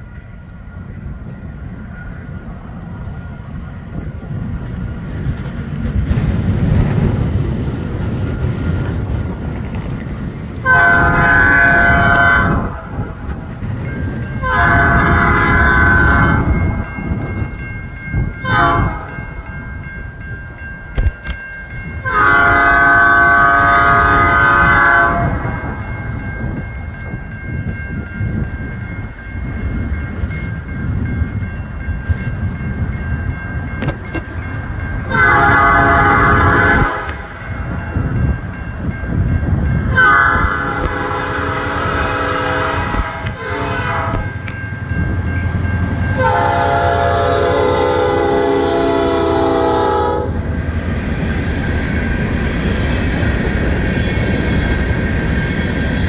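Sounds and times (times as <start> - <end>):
train rumbling: 0.0 - 56.0
locomotive air horn blasts: 10.6 - 13.0, 14.4 - 16.5, 18.4 - 19.2, 22.0 - 25.4, 35.1 - 37.3, 39.9 - 44.3, 46.2 - 50.4.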